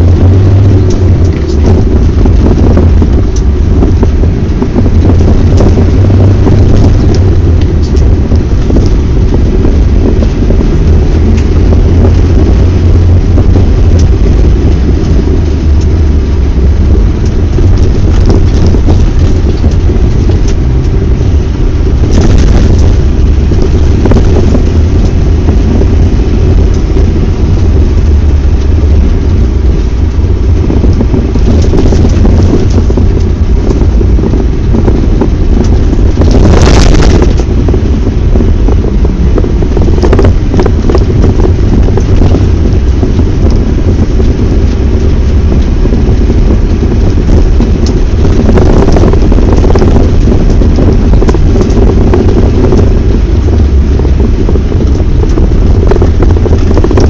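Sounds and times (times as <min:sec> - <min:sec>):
diesel engine and tyres rumbling: 0:00.0 - 0:57.0
rushes of noise: 0:00.0 - 0:57.0.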